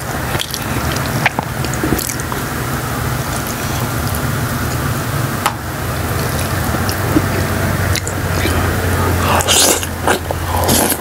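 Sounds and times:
wet chewing of noodles: 0.0s - 2.5s, 6.0s - 11.0s
steady low hum: 0.0s - 11.0s
noisy noodle slurping: 6.2s - 11.0s.

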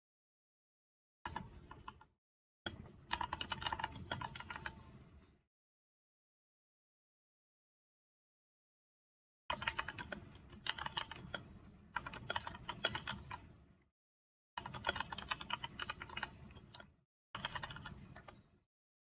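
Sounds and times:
rapid typing on computer keyboard: 1.3s - 2.1s, 2.7s - 4.9s, 9.5s - 13.5s, 14.6s - 18.5s.

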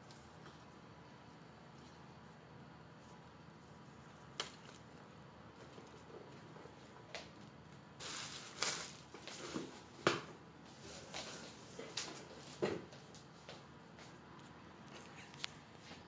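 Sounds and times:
cardboard packaging rustling: 8.0s - 9.9s.

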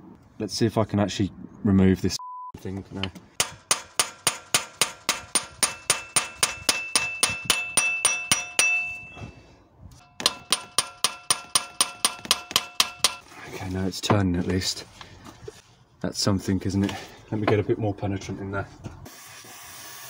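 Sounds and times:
hammer ringing on metal: 3.4s - 9.3s, 10.0s - 13.2s.

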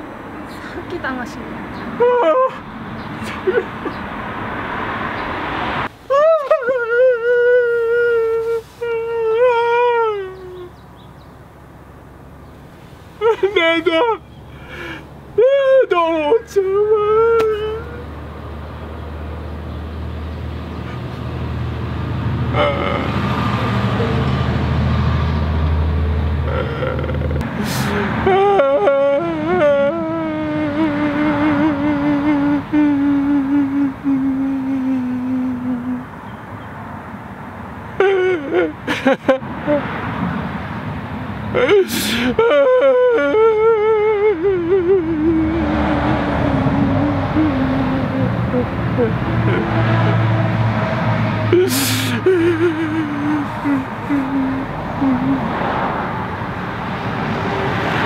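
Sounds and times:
man wailing in anguish: 2.0s - 2.6s, 6.1s - 10.7s, 13.2s - 18.0s, 22.5s - 24.4s, 26.5s - 36.0s, 38.0s - 40.0s, 41.5s - 50.3s, 51.5s - 55.8s
catches of breath: 14.5s - 15.2s, 26.5s - 28.2s, 41.8s - 42.4s, 51.6s - 52.3s.

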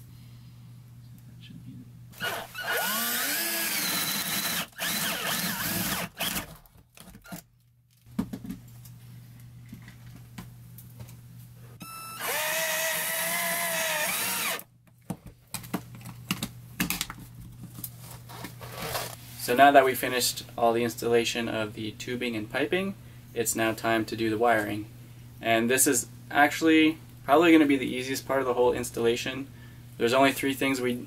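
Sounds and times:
power drill driving screws: 2.2s - 6.6s, 11.8s - 14.6s.

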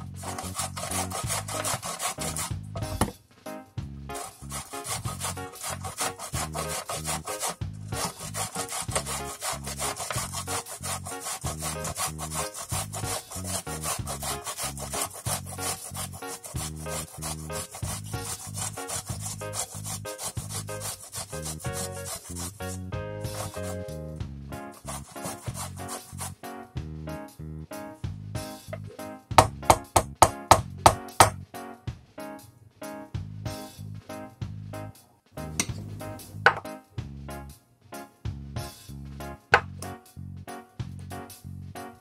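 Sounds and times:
vegetable grated on metal grater: 0.0s - 2.6s, 4.2s - 24.0s, 24.8s - 26.4s.

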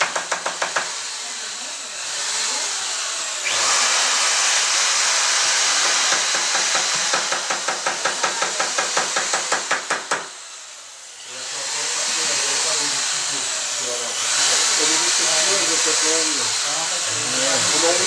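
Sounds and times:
rasping wood with hand tool: 0.0s - 10.3s, 11.4s - 18.0s.

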